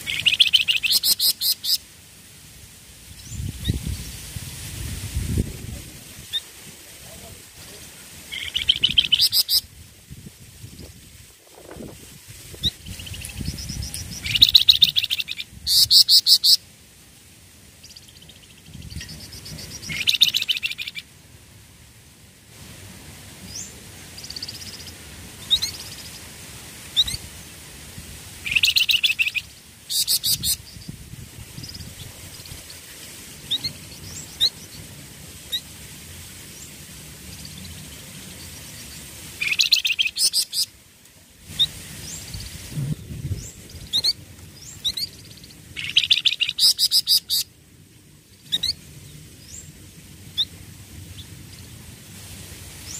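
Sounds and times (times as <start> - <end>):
bird chirps: 0.0 - 1.8, 8.3 - 9.7, 17.8 - 21.0, 28.4 - 31.0, 43.3 - 47.5
songbirds trilling: 0.0 - 1.8, 8.2 - 9.8, 12.5 - 16.6, 17.8 - 21.1, 23.4 - 26.3, 28.4 - 35.7, 36.4 - 40.8, 41.6 - 47.5, 48.3 - 51.7.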